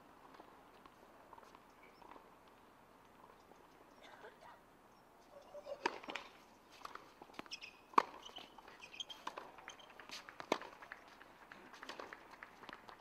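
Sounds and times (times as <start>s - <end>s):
tennis ball bounces: 5.6s - 13.0s
racket striking ball: 5.8s - 8.3s, 10.4s - 10.8s.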